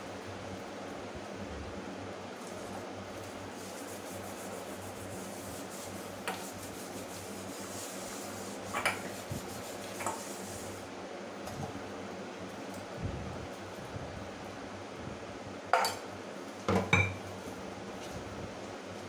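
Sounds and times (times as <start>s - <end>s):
scrubbing steel dishes: 7.6s - 10.4s.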